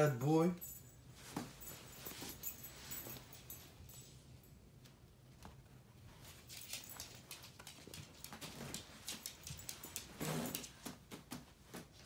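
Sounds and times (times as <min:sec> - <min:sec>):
fabric rustling: 0:01.1 - 0:04.0.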